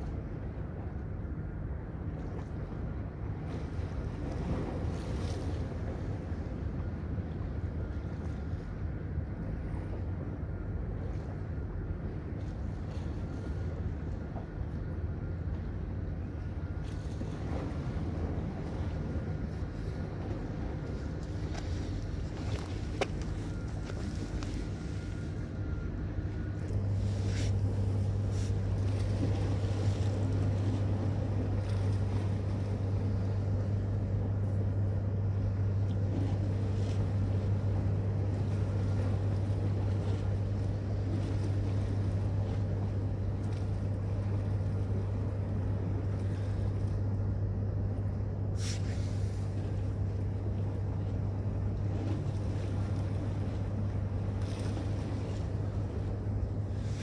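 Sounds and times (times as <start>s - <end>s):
steady low hum: 0.0s - 57.0s
water lapping against rocks: 51.7s - 57.0s.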